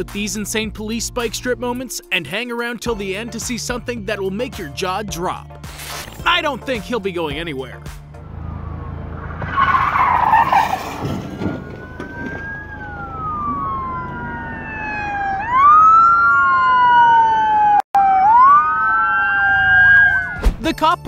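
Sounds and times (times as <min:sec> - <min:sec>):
police sirens wailing: 0:08.1 - 0:20.4.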